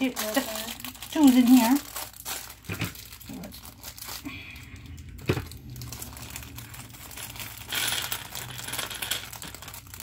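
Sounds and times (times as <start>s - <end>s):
plastic bag crinkling: 0.0s - 10.0s
plastic pieces clicking and rattling: 5.0s - 10.0s.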